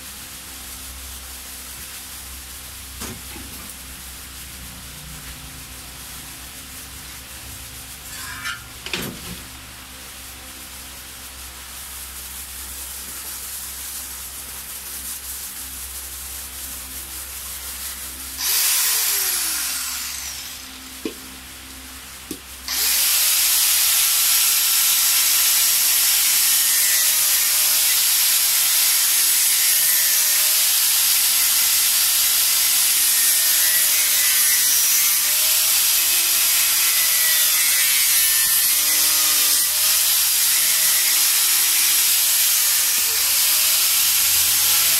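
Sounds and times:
angle grinder cutting fiberglass: 8.1s - 8.7s, 18.0s - 21.2s, 22.7s - 44.9s.

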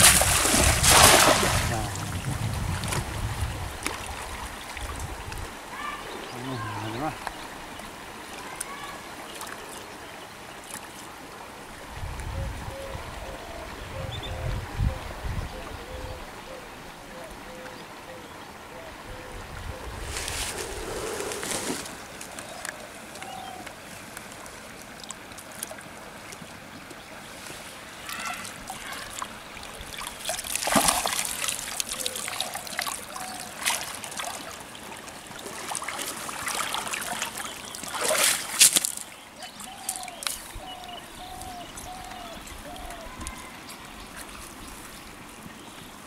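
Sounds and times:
net splashing in water: 0.0s - 2.0s, 29.9s - 33.0s, 35.4s - 39.0s.

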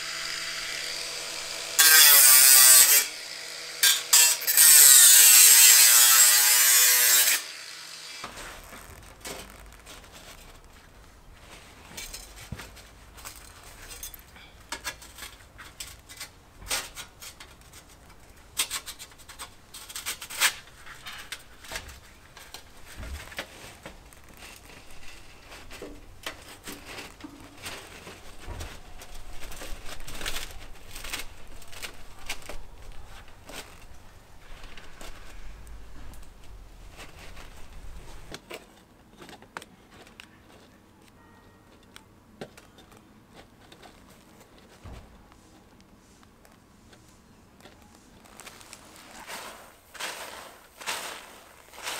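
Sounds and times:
gravel crunching and scraping: 8.2s - 14.2s, 47.7s - 51.9s.

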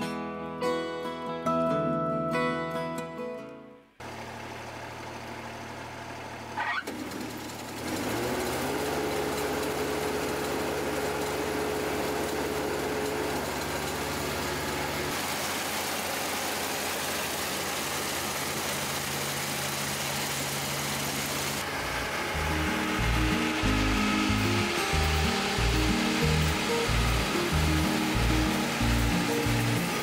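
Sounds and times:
diesel engine idling and revving: 4.0s - 30.0s
machinery whine: 16.5s - 30.0s.

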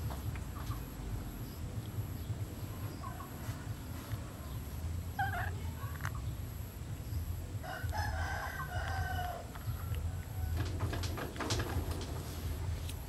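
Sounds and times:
steady low hum: 0.0s - 13.0s
rooster crowing: 7.6s - 10.7s.

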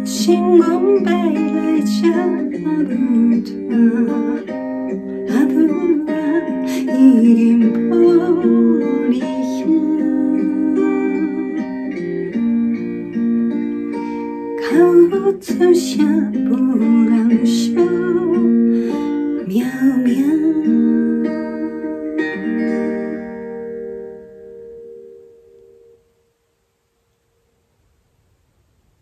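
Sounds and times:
woman singing a ballad: 0.0s - 12.7s, 14.4s - 22.9s
backing track of held chords: 0.0s - 29.0s.

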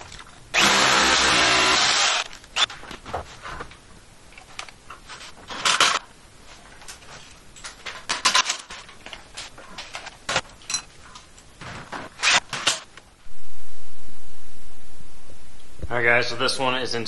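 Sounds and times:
tools being handled: 2.3s - 12.8s.

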